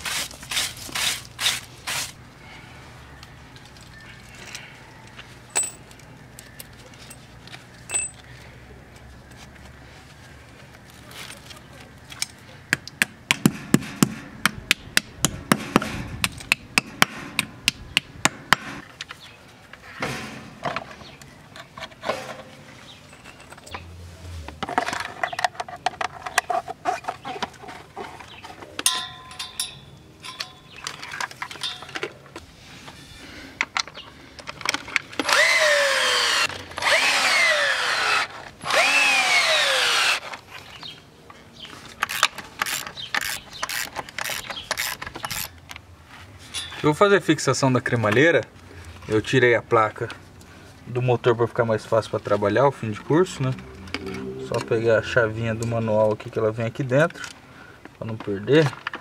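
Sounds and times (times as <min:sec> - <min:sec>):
power drill bursts: 0:35.2 - 0:40.2.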